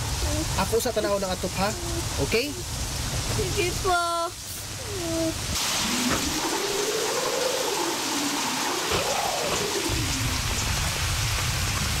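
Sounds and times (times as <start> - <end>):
heavy rain: 0.0 - 12.0
wind howling: 1.2 - 12.0
low rumble: 5.4 - 12.0.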